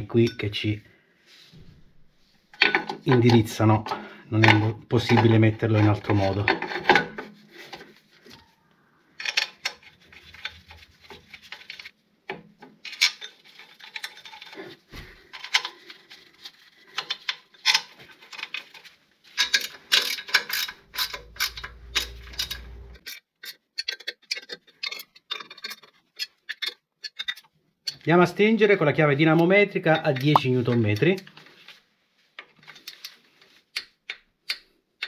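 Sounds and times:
metal bolts clinking: 19.4s - 23.2s.

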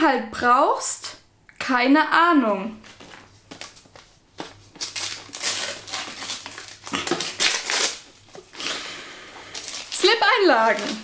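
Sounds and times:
gift wrapping crinkling: 2.8s - 11.0s.

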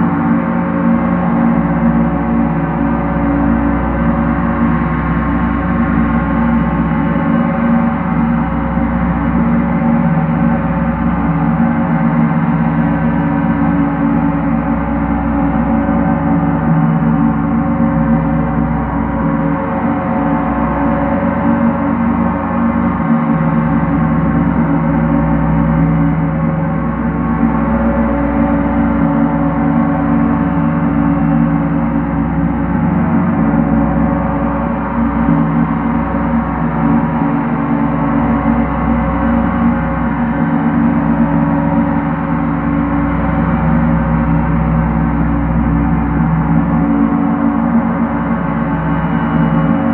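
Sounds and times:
gong ringing: 27.0s - 49.9s.

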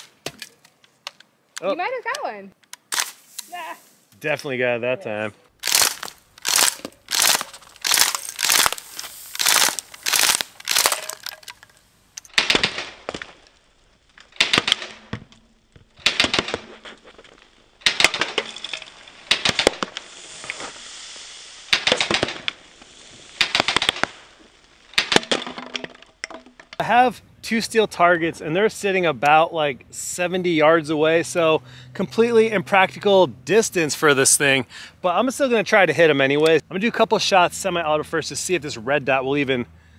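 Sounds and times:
bb pistol firing bursts: 5.6s - 8.8s, 9.4s - 11.3s, 12.3s - 13.0s, 14.4s - 15.1s, 16.0s - 16.6s, 17.8s - 18.4s, 19.3s - 19.9s, 23.4s - 24.1s.

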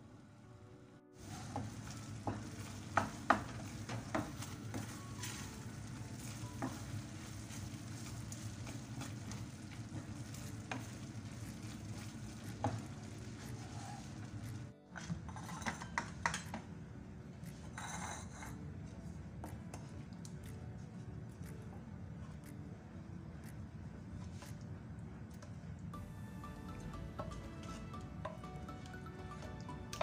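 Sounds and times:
sauce sizzling: 1.2s - 14.7s
wooden spoon scraping a pan: 1.2s - 16.1s, 17.6s - 18.6s
spoon knocking against pan: 1.6s - 5.0s.

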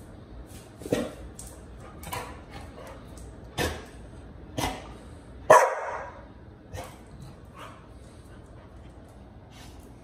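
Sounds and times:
dog barking: 5.5s - 6.2s.

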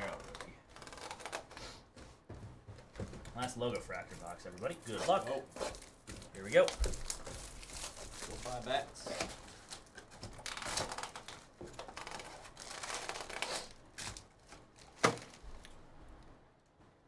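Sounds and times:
packaging crinkling and tearing: 0.0s - 1.6s, 3.7s - 15.8s
cardboard box tearing open: 6.5s - 14.2s.

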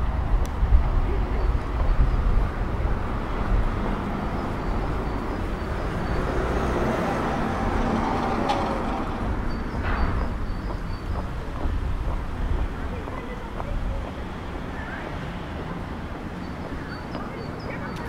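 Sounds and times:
car driving past: 3.0s - 10.8s.

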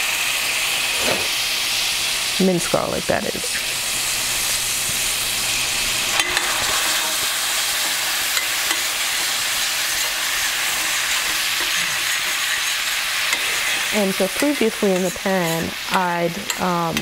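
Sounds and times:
garlic sizzling in butter: 0.0s - 17.0s
metal spoon scraping pan: 6.1s - 17.0s.

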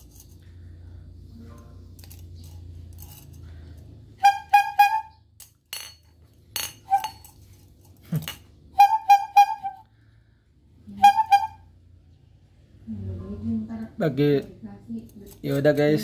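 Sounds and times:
bulb horn honking: 4.2s - 5.2s, 10.9s - 11.7s.

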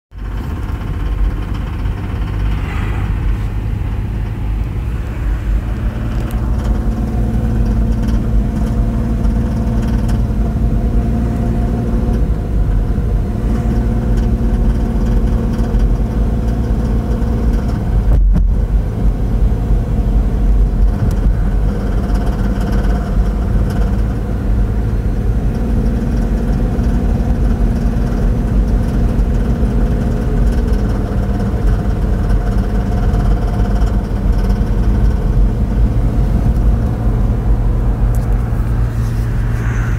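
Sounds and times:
engine knock or rattle: 0.1s - 2.7s, 5.8s - 37.6s
car engine running under load: 0.1s - 39.9s.

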